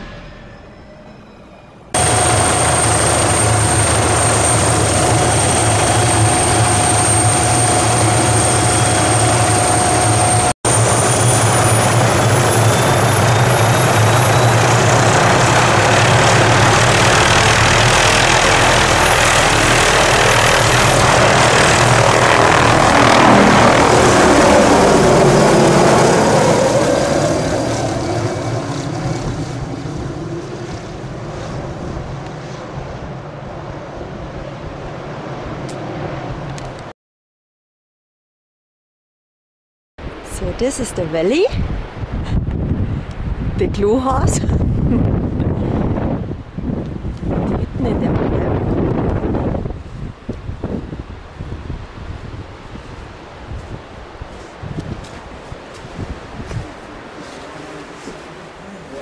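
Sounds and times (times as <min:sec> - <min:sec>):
helicopter turbine whine: 0:00.0 - 0:36.9, 0:40.1 - 0:59.0
helicopter rotor noise: 0:01.9 - 0:36.8, 0:43.6 - 0:51.8.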